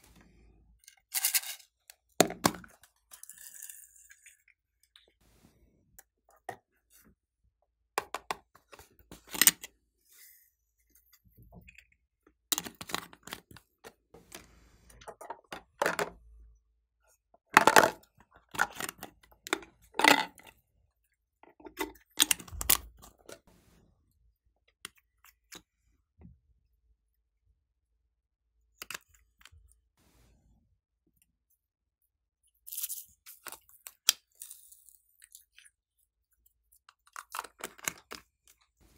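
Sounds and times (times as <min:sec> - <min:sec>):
plastic containers clicking and rattling: 0:12.6 - 0:16.2, 0:17.6 - 0:20.5.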